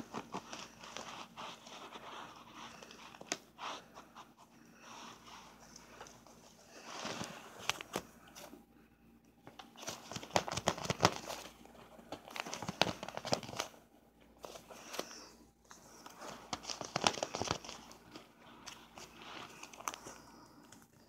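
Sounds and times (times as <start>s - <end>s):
plastic tubing crinkling: 9.5s - 13.8s, 14.4s - 21.0s.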